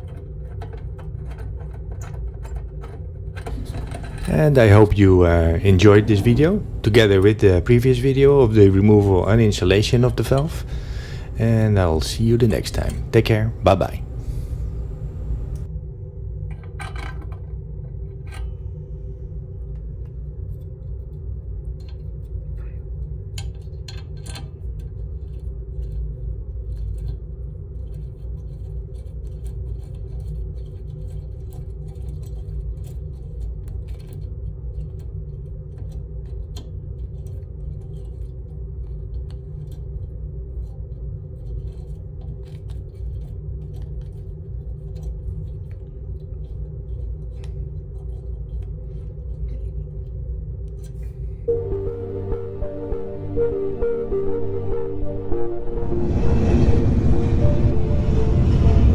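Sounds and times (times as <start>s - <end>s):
small metal parts clicking: 0.0s - 4.5s, 23.3s - 27.2s, 27.8s - 40.8s, 41.4s - 50.1s
steady low hum with tones: 0.0s - 58.9s.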